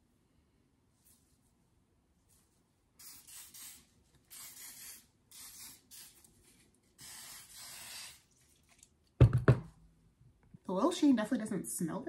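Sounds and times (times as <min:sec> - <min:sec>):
spray can hissing: 0:03.0 - 0:06.3, 0:07.0 - 0:08.3.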